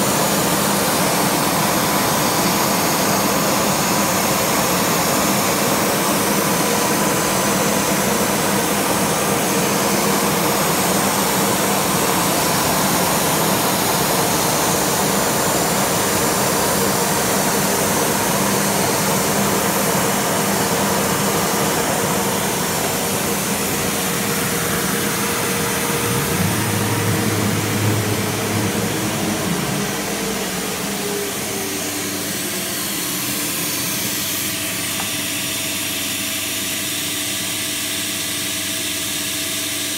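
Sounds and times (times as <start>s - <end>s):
cnc router machine noise: 0.0s - 39.9s
deeper hum: 7.2s - 34.4s.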